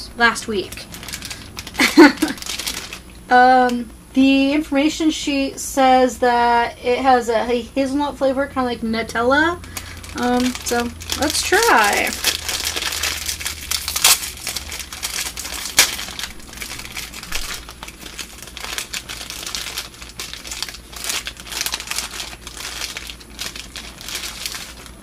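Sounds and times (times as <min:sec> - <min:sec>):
plastic wrapper crinkling: 0:00.2 - 0:03.2, 0:09.5 - 0:25.0
wrapper snapping: 0:00.6 - 0:03.2, 0:09.6 - 0:25.0.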